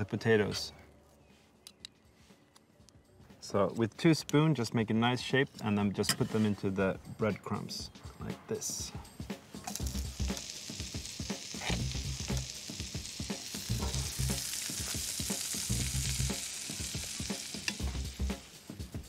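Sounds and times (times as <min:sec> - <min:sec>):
butter sizzling in a frying pan: 0:09.6 - 0:19.0.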